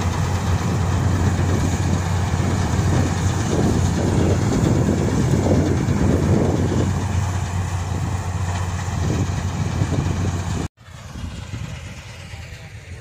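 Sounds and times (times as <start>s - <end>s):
combine harvester engine hum: 0.0s - 13.0s.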